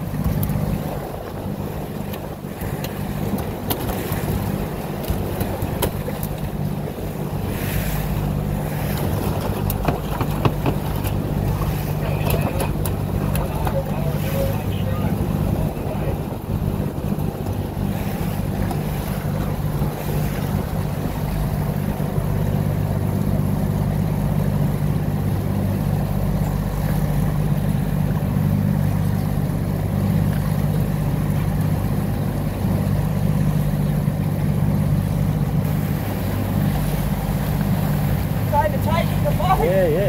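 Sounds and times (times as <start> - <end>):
boat engine droning: 0.0 - 40.0
rushing water: 0.0 - 40.0.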